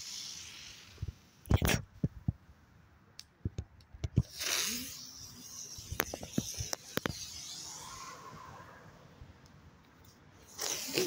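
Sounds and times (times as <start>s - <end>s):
firework hissing: 0.0s - 1.4s, 4.2s - 9.0s, 10.4s - 11.0s.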